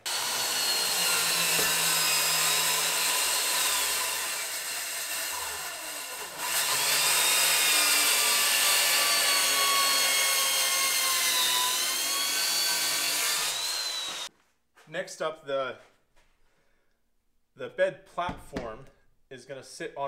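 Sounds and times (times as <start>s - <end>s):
circular saw cutting plywood: 0.0s - 14.3s.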